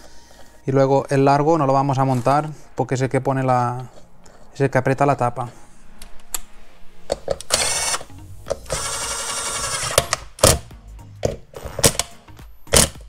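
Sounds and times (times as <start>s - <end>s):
electric screwdriver running: 7.5s - 10.6s.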